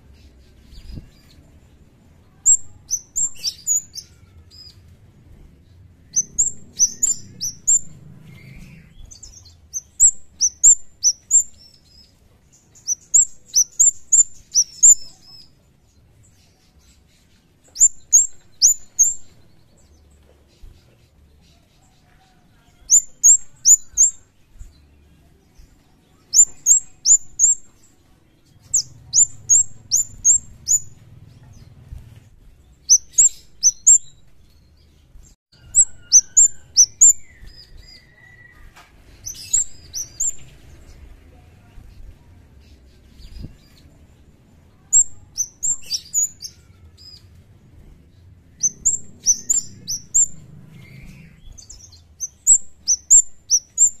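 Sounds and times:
bird high sharp chirps: 2.3 - 4.8, 6.0 - 12.1, 12.7 - 15.6, 16.5 - 19.6, 22.8 - 24.3, 26.1 - 27.8, 28.5 - 31.0, 32.8 - 34.2, 35.6 - 40.5, 44.8 - 47.3, 48.5 - 54.0.

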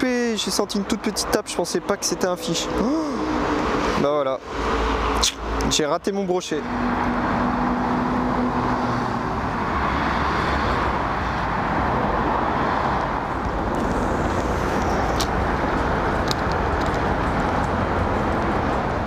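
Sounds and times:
road traffic rush: 0.0 - 19.0.

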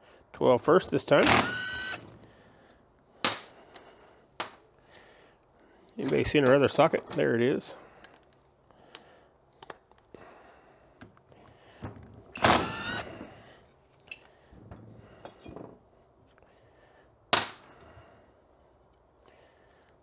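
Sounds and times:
cordless power driver spinning: 1.2 - 2.1, 12.4 - 13.2.

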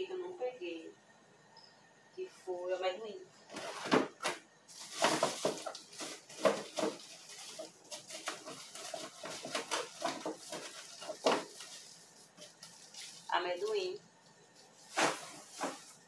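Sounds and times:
plastic crinkling: 3.5 - 16.0.

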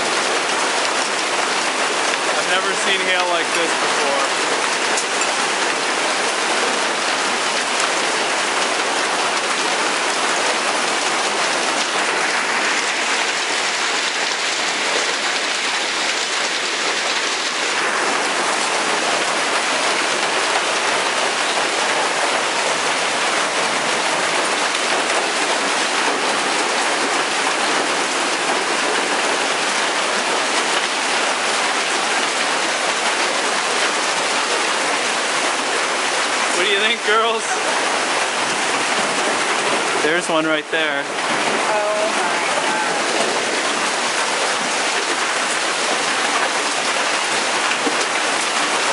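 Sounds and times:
hail and rain clattering: 0.0 - 48.9.

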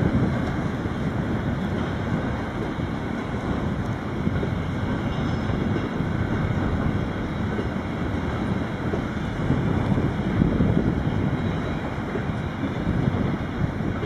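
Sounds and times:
freight train rumbling past: 0.0 - 14.0
wind buffeting microphone: 0.0 - 14.0.

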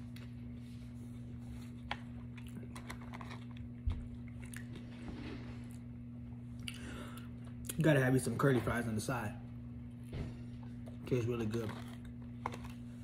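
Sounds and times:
low electrical hum: 0.0 - 13.0
man chewing: 1.4 - 5.9.

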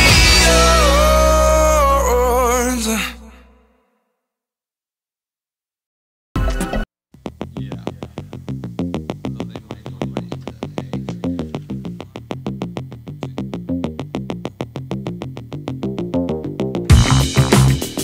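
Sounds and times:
background music track: 0.0 - 2.4.

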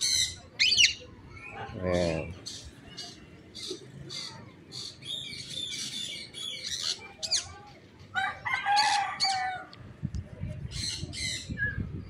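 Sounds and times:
small birds chirping: 0.0 - 7.8
rooster crowing: 8.2 - 9.7.

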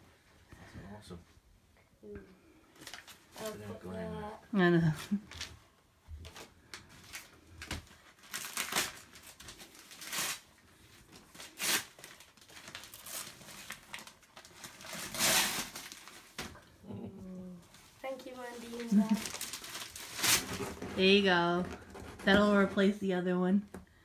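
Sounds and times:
wrapping paper rustling and tearing: 2.8 - 3.6, 4.9 - 5.6, 6.2 - 16.5, 17.7 - 22.8.

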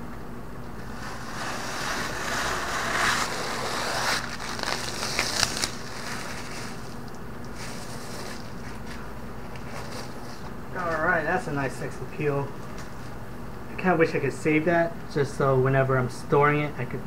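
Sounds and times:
steady low hum: 0.0 - 17.0
plastic film peeling and crackling: 0.8 - 11.0.

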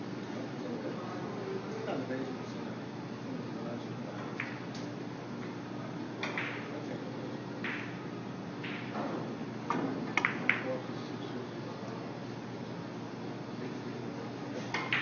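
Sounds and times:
billiard hall background: 0.0 - 15.0
billiard balls clicking: 6.2 - 6.7, 7.6 - 8.0, 8.6 - 8.9, 10.1 - 10.6, 14.8 - 15.0
cue striking billiard ball: 6.2 - 6.7, 7.6 - 8.0, 8.6 - 10.7, 14.8 - 15.0.

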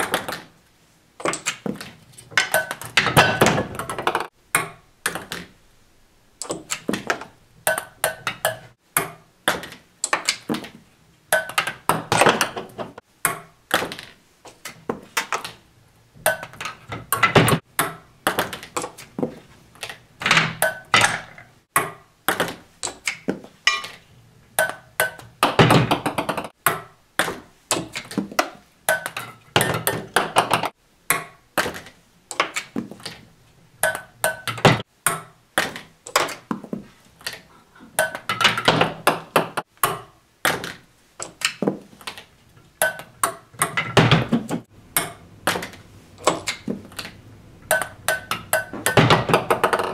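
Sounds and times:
wooden blocks clattering: 1.2 - 5.6, 6.5 - 49.9
ping-pong ball bouncing on wood: 24.6 - 27.4, 28.9 - 31.8, 47.7 - 49.9.

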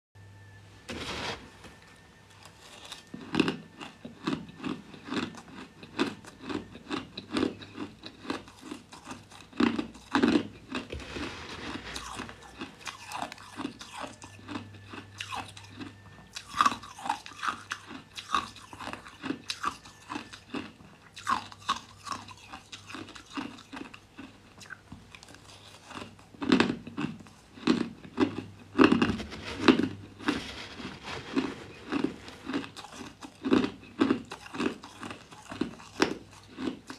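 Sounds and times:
crushed ice crunching: 10.8 - 17.6, 29.6 - 35.2.

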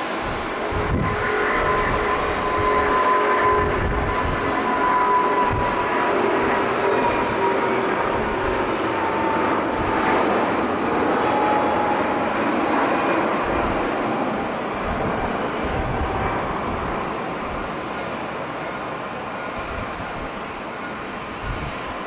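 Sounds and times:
jet engines at takeoff: 0.0 - 22.0
wind rumble on microphone: 0.1 - 6.5, 14.7 - 17.7, 21.2 - 22.0.

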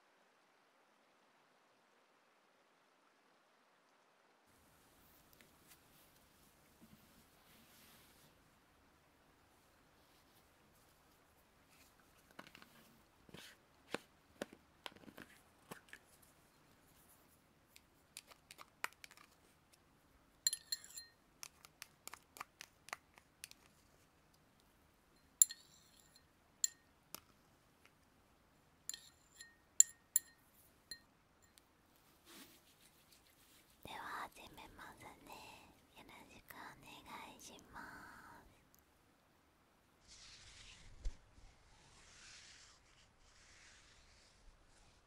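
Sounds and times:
soft taps and rustles: 5.0 - 8.4, 10.0 - 19.8
small objects clicking brightly: 20.5 - 23.8.

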